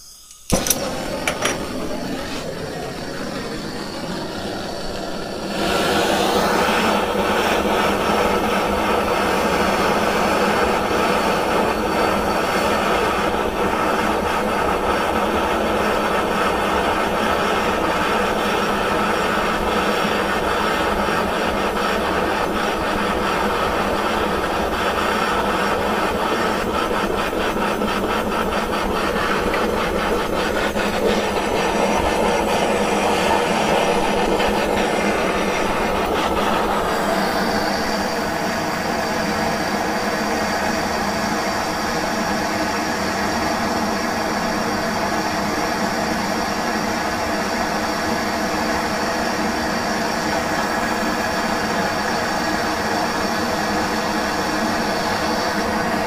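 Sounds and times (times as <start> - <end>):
thin high steady tone: 0.0 - 5.6
gas torch flame hissing: 0.0 - 56.0.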